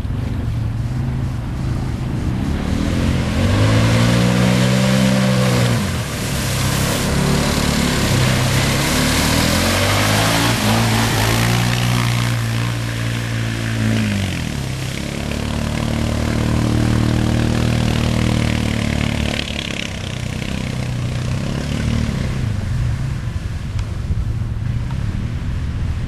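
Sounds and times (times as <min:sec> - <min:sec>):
atv engine running: 0:00.0 - 0:26.0
water splashing and spraying: 0:00.0 - 0:26.0
fast-flowing creek water: 0:05.6 - 0:19.2.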